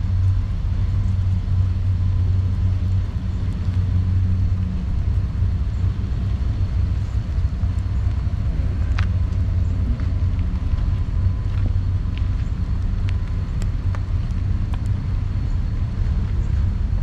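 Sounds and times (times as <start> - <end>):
distant freight train rumble: 0.0 - 17.0
faint clicks: 7.0 - 16.6.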